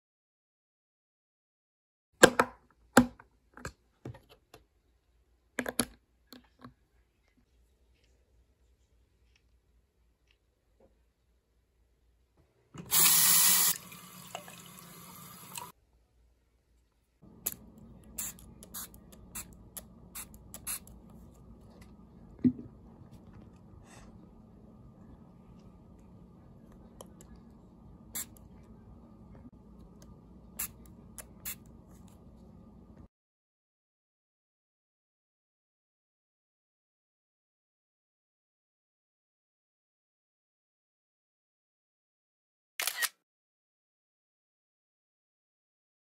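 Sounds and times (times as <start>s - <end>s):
spray bottle spritzing: 12.9s - 13.8s, 17.4s - 21.0s, 28.2s - 28.4s, 30.6s - 31.7s.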